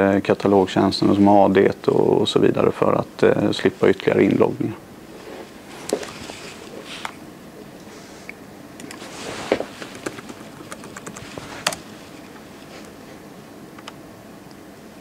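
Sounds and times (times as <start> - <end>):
laptop keys clicking: 9.9 - 11.8.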